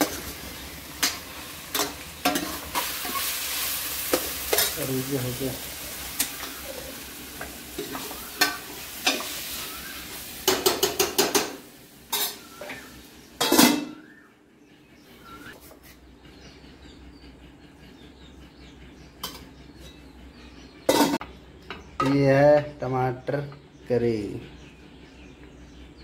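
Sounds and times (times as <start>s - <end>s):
food sizzling in a pan: 0.0s - 14.0s
ringing clanks of lids and pans: 1.0s - 3.2s, 7.8s - 9.4s, 10.4s - 12.8s, 13.4s - 14.0s, 19.2s - 19.6s, 20.9s - 22.6s.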